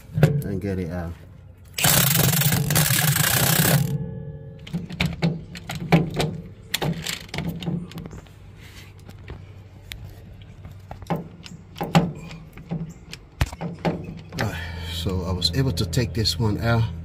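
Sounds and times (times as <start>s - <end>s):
knocks and clicks of tools: 4.6s - 8.3s, 10.8s - 14.5s.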